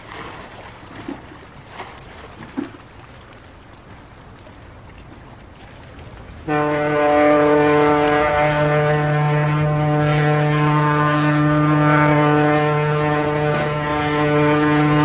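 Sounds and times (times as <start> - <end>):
faint wind: 0.0 - 15.0
water: 0.0 - 15.0
ship's horn blast: 6.4 - 15.0.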